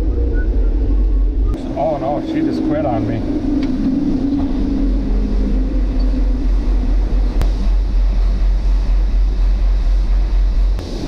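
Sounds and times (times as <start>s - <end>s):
pulsing low rumble: 0.0s - 11.0s.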